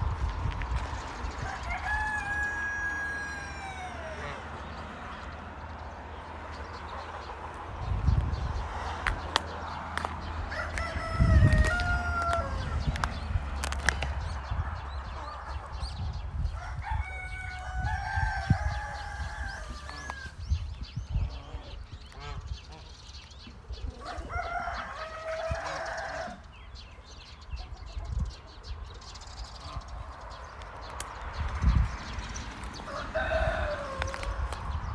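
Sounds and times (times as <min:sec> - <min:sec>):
rooster crowing: 0:01.4 - 0:04.4, 0:10.5 - 0:12.8, 0:16.6 - 0:20.4, 0:24.0 - 0:26.4, 0:32.9 - 0:34.5
steady low rumble: 0:04.5 - 0:16.8.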